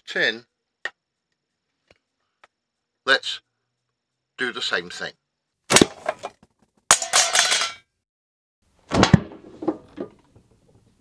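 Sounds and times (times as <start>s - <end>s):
metal lid clattering and ringing: 6.9s - 7.8s.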